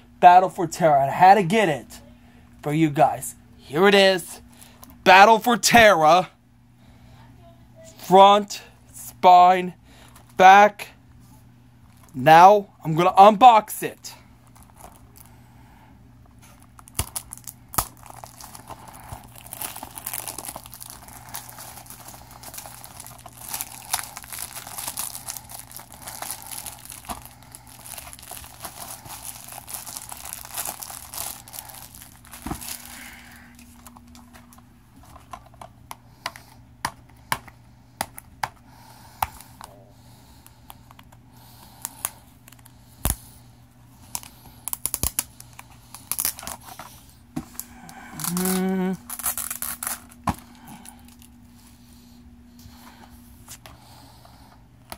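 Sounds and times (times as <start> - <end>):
shrink-wrap crinkling and tearing: 14.4 - 15.3, 16.4 - 34.6, 41.6 - 43.3, 44.0 - 51.5.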